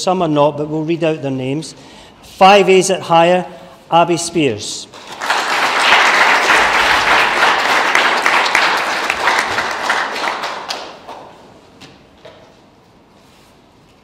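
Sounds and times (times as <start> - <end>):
audience applauding: 5.0 - 11.4.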